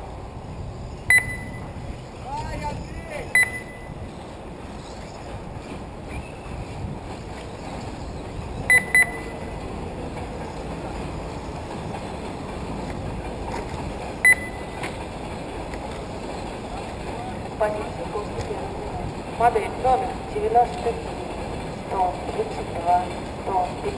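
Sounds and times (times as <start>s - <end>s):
loud electronic beeps: 1.1s - 1.8s, 3.4s - 4.0s, 8.7s - 9.5s, 14.2s - 14.8s.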